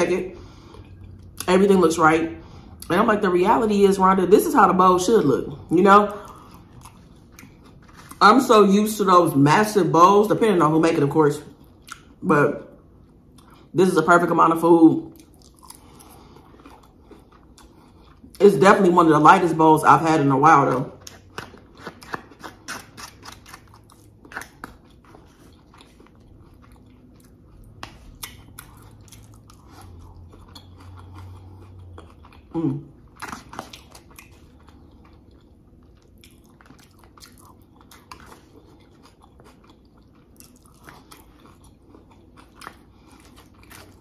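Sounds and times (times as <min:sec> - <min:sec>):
crunchy chewing: 0:06.1 - 0:08.2, 0:15.1 - 0:18.4, 0:20.8 - 0:44.0.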